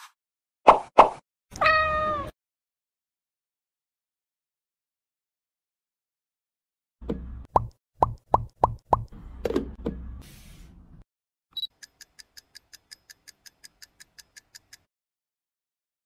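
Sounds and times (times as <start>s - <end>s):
timer ticking: 11.6s - 14.9s.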